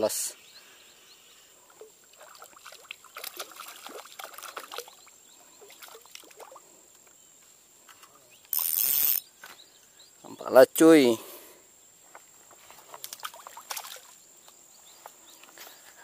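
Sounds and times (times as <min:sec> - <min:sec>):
lure splashing on water: 0:01.7 - 0:06.7, 0:12.8 - 0:14.2
fishing reel clicking: 0:08.5 - 0:09.2.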